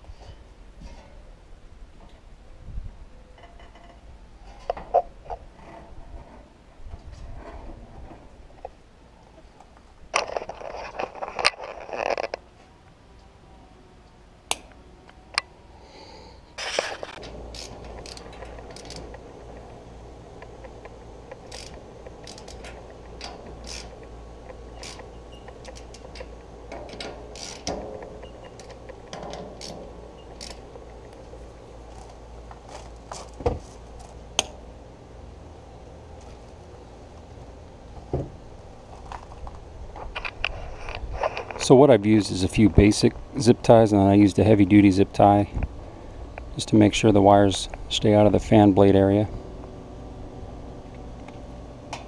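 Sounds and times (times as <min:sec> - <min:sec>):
steady low hum: 0:00.0 - 0:52.0
nut driver clicking and scraping: 0:16.6 - 0:19.7.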